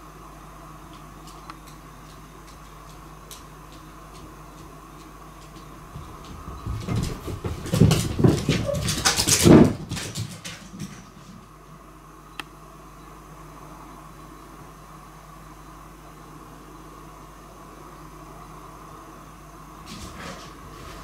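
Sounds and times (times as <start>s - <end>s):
cat running on wooden floor: 5.4s - 11.4s.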